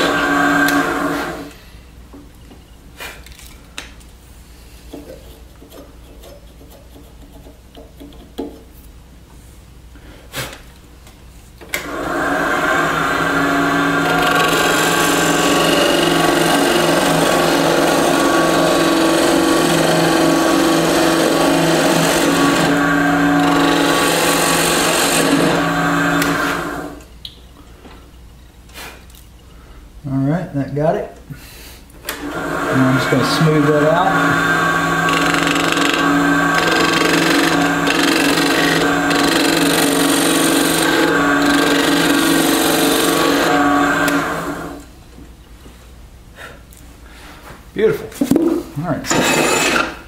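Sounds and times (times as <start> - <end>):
lathe tool scraping wood: 0.0 - 1.5, 11.8 - 27.0, 32.1 - 44.8, 49.1 - 50.0.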